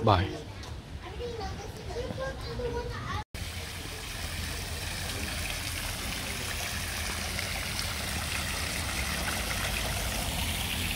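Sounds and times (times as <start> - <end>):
water fountain splashing: 3.4 - 10.9.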